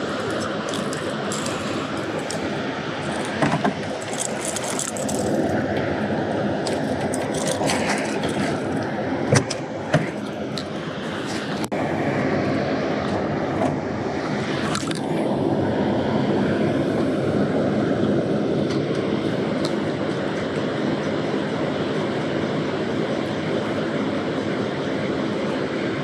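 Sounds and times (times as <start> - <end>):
water roaring through spillway: 0.0 - 18.4.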